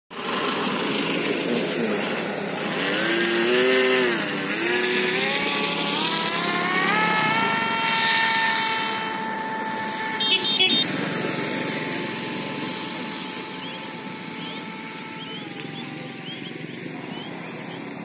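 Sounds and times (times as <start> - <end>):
model plane motor whining: 0.2 - 18.0
steady rushing noise: 4.1 - 18.0.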